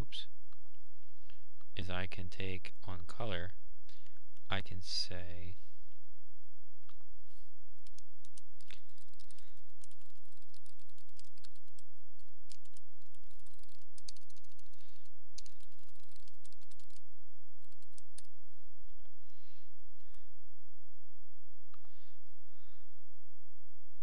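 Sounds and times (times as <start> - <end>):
low electrical hum: 0.0 - 24.0
typing on computer keyboard: 7.8 - 17.0, 17.6 - 18.3.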